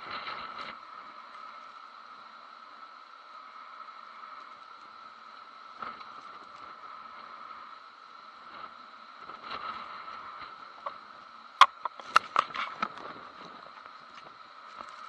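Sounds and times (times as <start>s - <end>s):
muffled hurricane wind: 5.4s - 15.0s.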